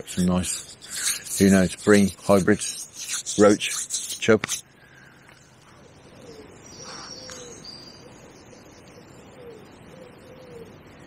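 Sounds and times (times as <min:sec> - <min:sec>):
songbird chirping: 0:04.6 - 0:11.0
pigeon cooing: 0:09.3 - 0:10.8.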